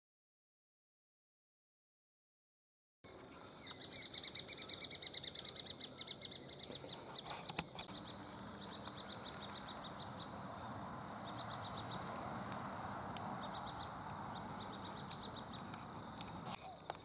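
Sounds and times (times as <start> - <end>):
sharp clicks: 11.2 - 17.0.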